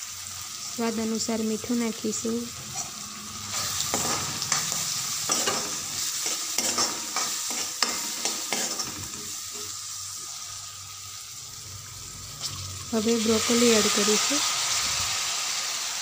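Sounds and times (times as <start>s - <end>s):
peas sizzling in oil: 0.0s - 16.0s
metal spatula scraping pan: 2.6s - 9.8s.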